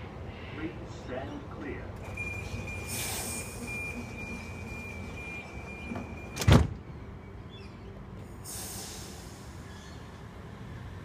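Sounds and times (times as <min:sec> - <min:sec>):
door warning tone: 0:02.0 - 0:06.7
sliding doors slamming shut: 0:02.0 - 0:06.8.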